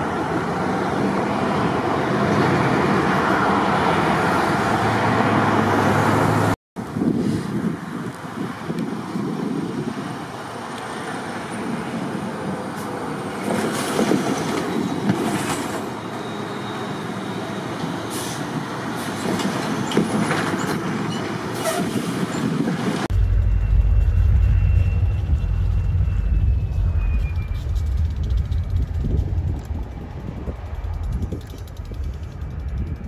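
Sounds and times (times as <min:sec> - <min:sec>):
diesel locomotive engine rumble: 0:06.8 - 0:33.0
train clanks: 0:13.4 - 0:16.0, 0:23.2 - 0:33.0.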